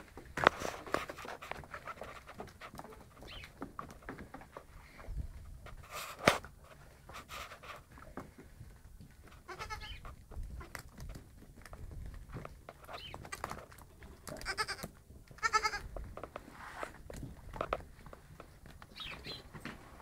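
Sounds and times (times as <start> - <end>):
goat kids bleating: 9.4 - 10.0, 14.2 - 15.9.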